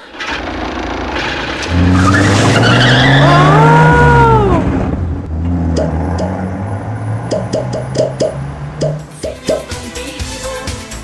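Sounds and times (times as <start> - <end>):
van engine revving: 0.0 - 9.2
tyre squeal: 1.8 - 4.3.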